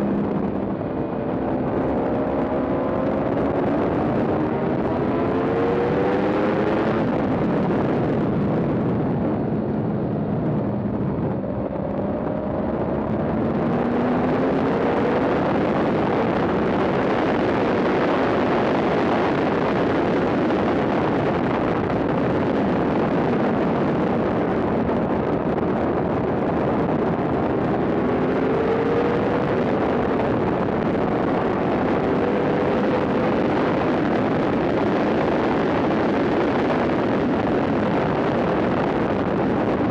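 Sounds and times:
wind rush on microphone: 0:00.0 - 0:39.9
motorcycle engine revving hard: 0:25.5 - 0:39.9.

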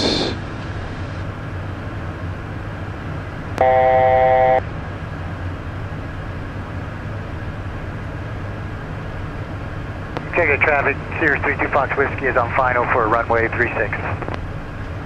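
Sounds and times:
jet cockpit drone: 0:03.5 - 0:04.7, 0:10.2 - 0:14.4
loud steady electronic tone: 0:03.6 - 0:04.7.

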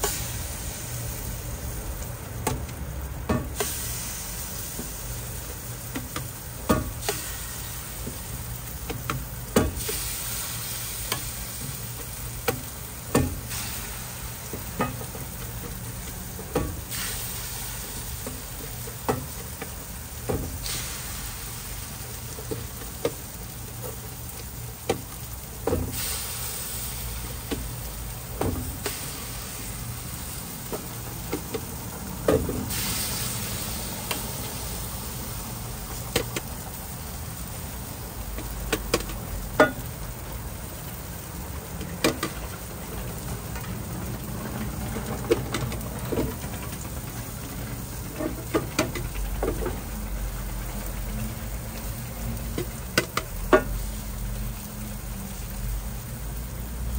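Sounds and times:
food sizzling on a griddle: 0:00.0 - 0:56.9
sharp clicks and knocks: 0:38.3 - 0:39.9, 0:45.2 - 0:50.0.

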